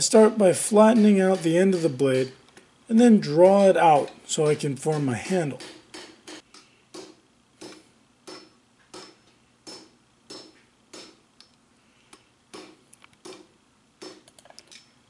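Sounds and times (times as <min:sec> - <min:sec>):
hammer striking steel on anvil: 0:00.6 - 0:02.4, 0:03.0 - 0:11.2.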